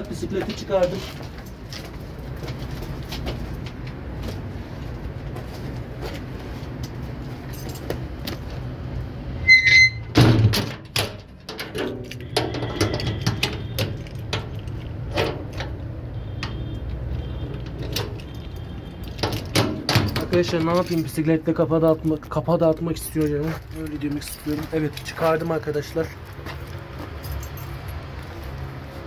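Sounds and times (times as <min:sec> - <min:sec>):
short electronic beep: 0:09.4 - 0:10.1
bicycle knocks and rattles: 0:10.1 - 0:16.7, 0:19.1 - 0:21.2.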